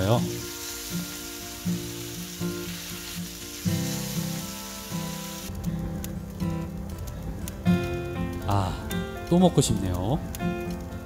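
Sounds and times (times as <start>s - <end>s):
meat sizzling in a pan: 0.0s - 6.8s
background music: 0.0s - 11.0s
sharp crackles and pops: 0.0s - 11.0s.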